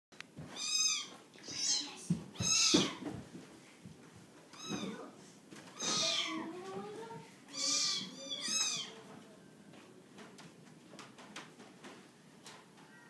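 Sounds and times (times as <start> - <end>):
kittens meowing: 0.5 - 3.0, 4.5 - 5.1, 5.7 - 6.5, 7.5 - 9.0.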